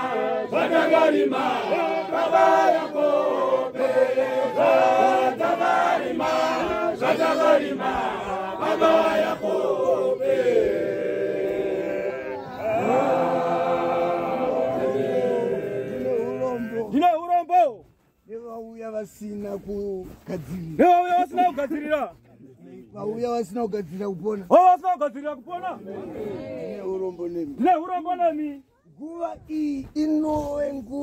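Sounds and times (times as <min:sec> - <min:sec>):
congregation chanting a hymn: 0:00.0 - 0:17.0.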